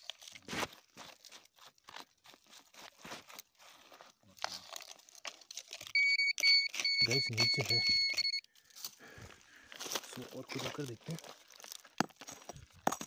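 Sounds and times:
hand scraping gravelly soil: 0.0s - 5.5s, 8.9s - 13.0s.

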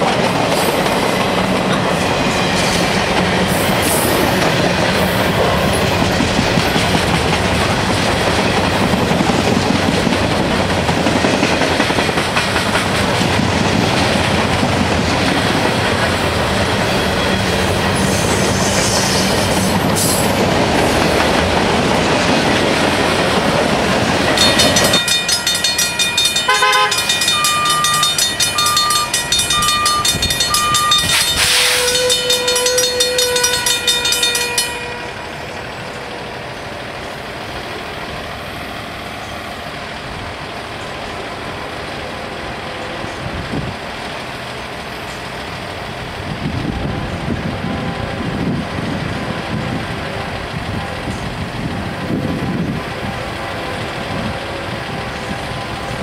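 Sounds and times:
train wheels clattering on rail: 0.0s - 56.0s
grade-crossing bell ringing: 24.0s - 36.4s.

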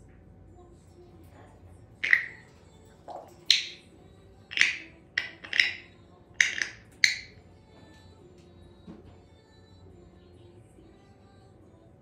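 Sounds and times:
sharp ringing clicks: 2.0s - 2.5s, 3.1s - 3.9s, 4.5s - 7.4s.

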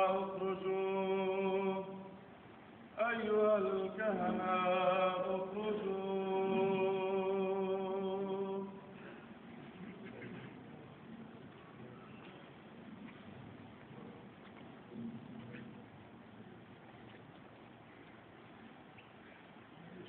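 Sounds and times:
man chanting: 0.0s - 2.2s, 3.0s - 9.0s.

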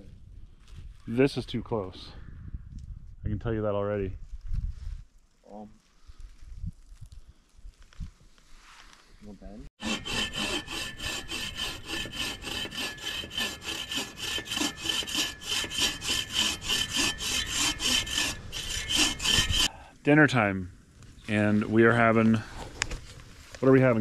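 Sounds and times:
hand saw cutting wood: 9.8s - 19.7s.

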